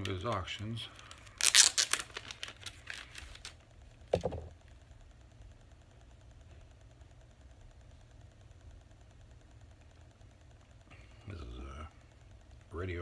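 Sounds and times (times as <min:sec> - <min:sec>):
dull knock on tabletop: 0:04.1 - 0:04.5.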